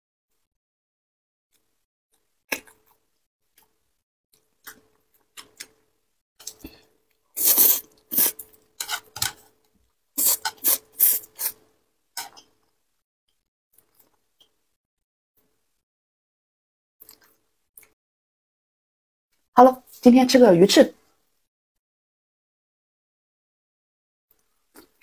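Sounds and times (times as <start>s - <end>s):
close eating and chewing sounds: 1.5s - 12.8s, 13.7s - 14.6s, 17.0s - 18.0s, 24.3s - 25.0s.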